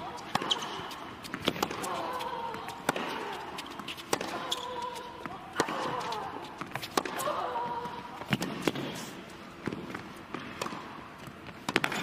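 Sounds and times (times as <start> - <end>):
racket hitting tennis ball: 0.1 - 7.4, 11.6 - 12.0
tennis ball bouncing: 0.1 - 8.9, 9.6 - 12.0.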